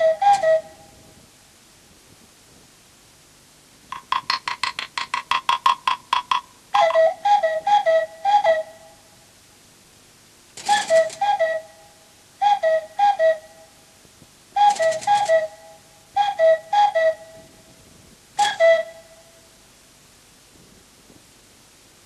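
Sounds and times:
cuckoo clock call: 0.0 - 1.0, 3.9 - 9.1, 10.6 - 13.8, 14.6 - 17.5, 18.4 - 19.4.

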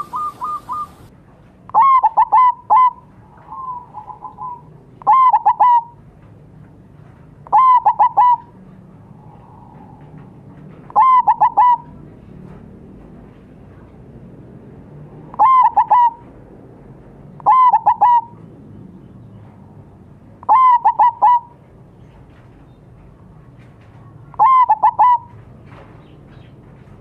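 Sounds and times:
dove cooing: 0.0 - 1.1, 1.7 - 6.0, 7.4 - 12.1, 15.3 - 16.3, 17.4 - 18.4, 20.5 - 21.6, 24.3 - 25.4.

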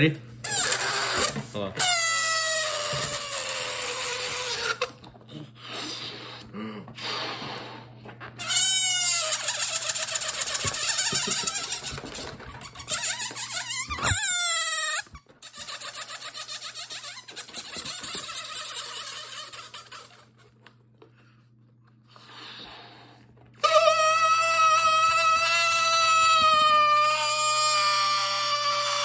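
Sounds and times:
balloon air squealing: 0.4 - 5.0, 7.0 - 20.4, 23.6 - 29.0.

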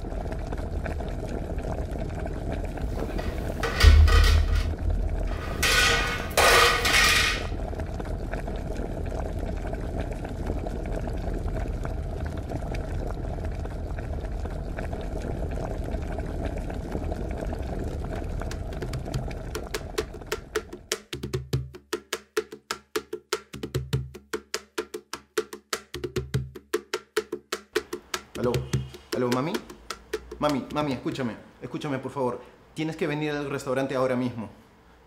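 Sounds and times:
pot boiling hard: 0.0 - 21.8, 27.7 - 31.2.

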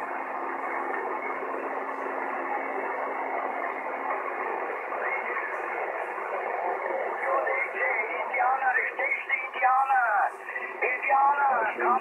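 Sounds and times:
weak radio transmissions: 1.0 - 12.0
radio static hiss: 4.5 - 12.0.

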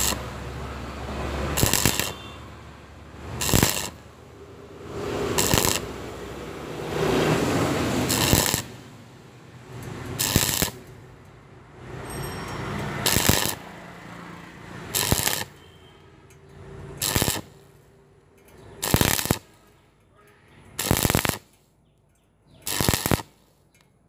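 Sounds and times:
welding arc crackling: 0.0 - 8.9, 9.6 - 11.2, 12.7 - 13.8, 14.5 - 19.8, 20.7 - 21.6, 22.6 - 23.4.

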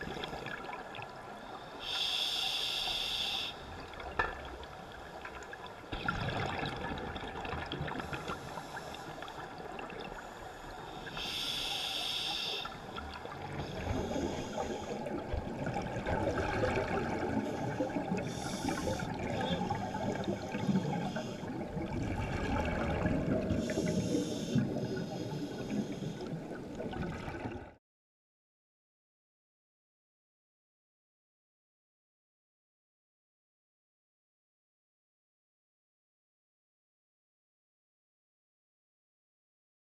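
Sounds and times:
underwater bubbling and rumble: 0.0 - 27.8
regulator breath hissing: 1.8 - 3.7, 10.9 - 12.8, 18.3 - 19.2, 23.6 - 26.3.

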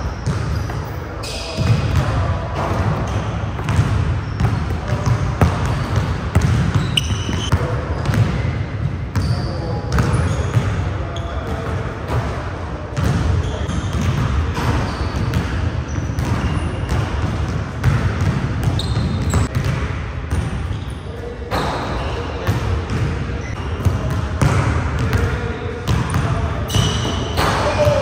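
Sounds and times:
shoe squeaks: 0.0 - 2.0, 3.0 - 6.1, 6.7 - 8.5, 9.2 - 11.5, 13.4 - 14.0, 14.6 - 17.0, 18.6 - 19.6, 20.6 - 22.4, 23.4 - 24.1, 26.0 - 28.0
basketballs bouncing on hardwood: 1.6 - 8.4, 13.0 - 20.5.

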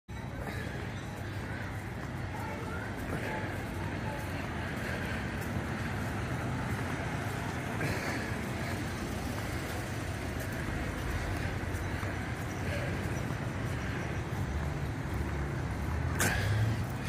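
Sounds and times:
low outdoor rumble: 0.1 - 17.0.

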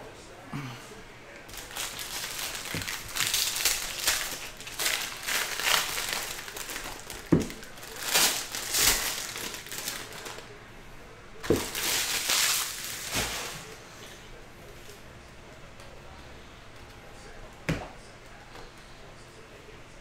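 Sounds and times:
foil wrappers crinkling: 1.5 - 10.5, 11.4 - 13.8.

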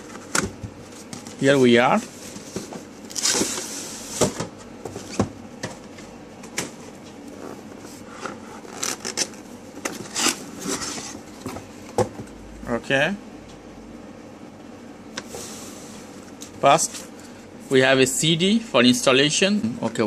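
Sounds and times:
cardboard rubbing and scraping: 9.9 - 11.3.

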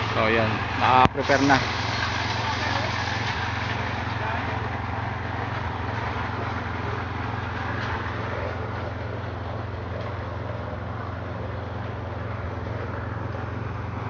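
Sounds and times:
small petrol engine running: 0.0 - 14.0.

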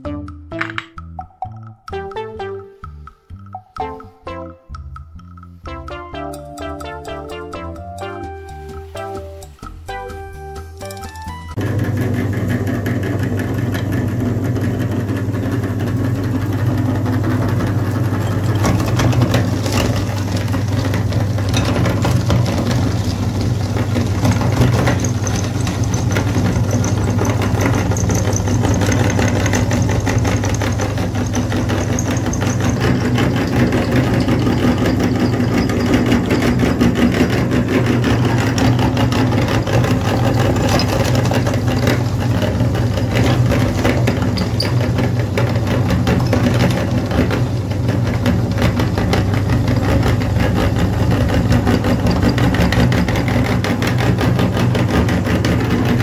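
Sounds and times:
meat grinder motor humming: 11.6 - 56.0.

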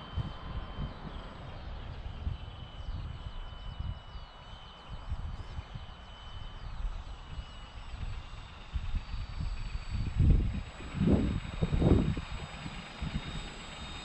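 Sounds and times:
wind gusting on microphone: 0.0 - 4.2, 4.9 - 14.0
faint bird chirps: 0.0 - 10.8
small electric motor whine: 0.0 - 14.0.

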